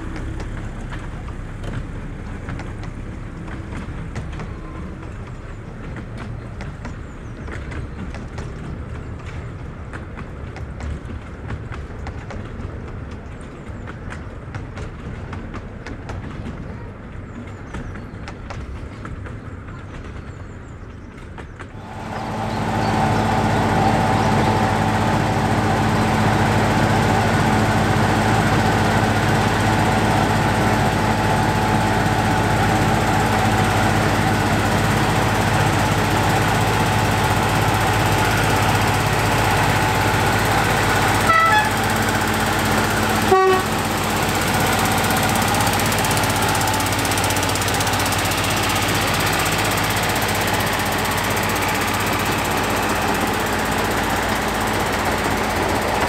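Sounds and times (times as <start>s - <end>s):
coaches clattering on track: 0.0s - 56.0s
diesel locomotive engine running: 0.0s - 56.0s
train horn toots: 41.2s - 41.9s, 43.2s - 43.8s.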